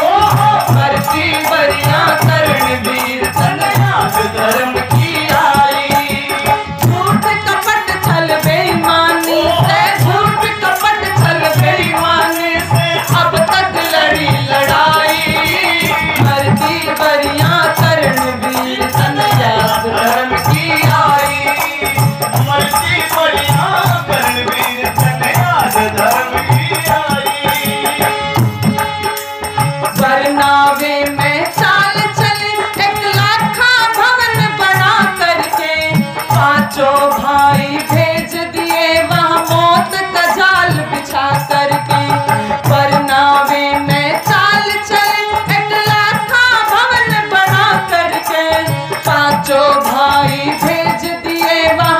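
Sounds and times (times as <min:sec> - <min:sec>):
woman singing: 0:00.0 - 0:28.4, 0:29.8 - 0:51.9
harmonium: 0:00.0 - 0:51.9
man singing: 0:00.0 - 0:51.9
rattling hand percussion: 0:00.0 - 0:51.9.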